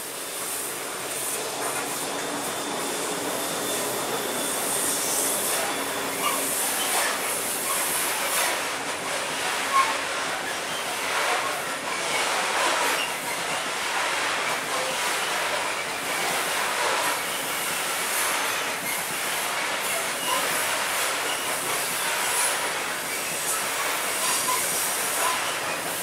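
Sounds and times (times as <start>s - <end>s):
train wheels rattling on rails: 0.0s - 26.0s
faint wheel squeal: 1.7s - 8.6s, 9.4s - 13.7s, 19.8s - 25.9s.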